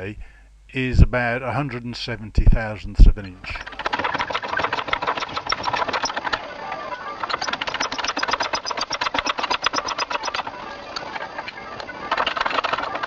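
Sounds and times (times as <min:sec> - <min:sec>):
hydraulic hand pump clicking: 0:03.6 - 0:06.5, 0:07.2 - 0:11.1, 0:12.1 - 0:13.0.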